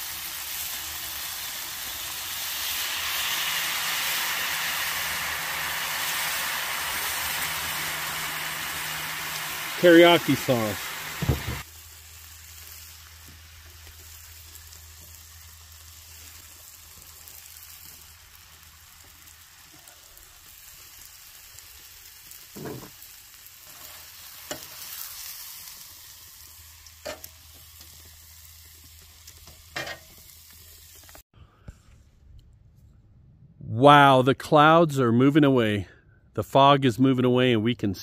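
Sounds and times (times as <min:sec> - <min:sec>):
meat sizzling in sauce: 0:00.0 - 0:31.2.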